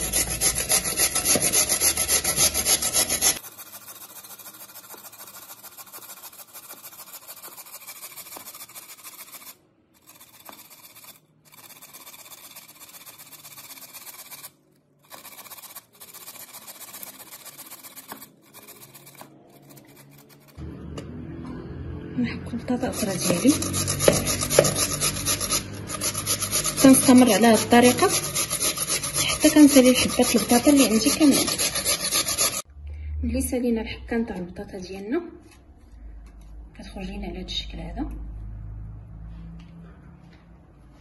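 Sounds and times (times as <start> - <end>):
potato grated on metal grater: 0.0 - 20.6, 22.7 - 32.7.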